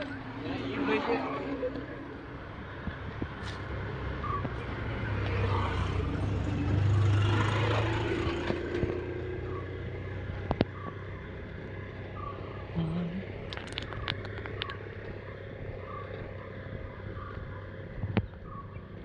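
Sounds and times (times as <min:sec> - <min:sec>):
vehicle engine hum passing: 0:00.0 - 0:19.0.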